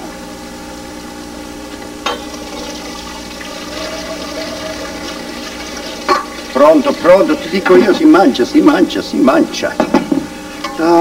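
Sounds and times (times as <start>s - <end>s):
water pouring into a sink: 2.1s - 8.5s.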